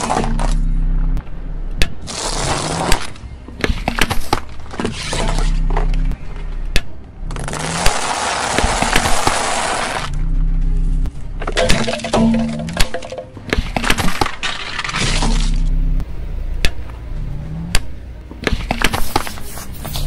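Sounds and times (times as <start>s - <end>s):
tyre crushing things on asphalt: 1.9s - 6.0s, 7.3s - 10.1s.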